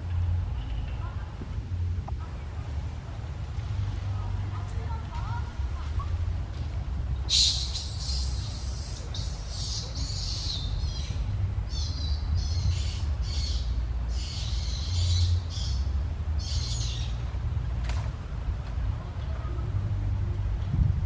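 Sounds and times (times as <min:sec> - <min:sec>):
low steady rumble: 0:00.0 - 0:21.0
birds chirping: 0:07.2 - 0:17.3.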